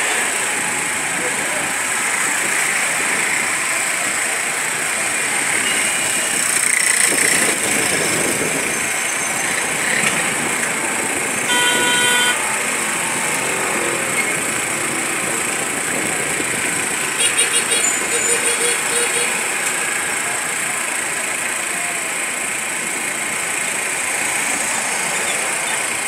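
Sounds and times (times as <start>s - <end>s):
motorcycles and cars passing: 0.0s - 26.0s
vehicle horn honking: 5.6s - 6.3s, 11.4s - 12.5s, 17.2s - 19.5s.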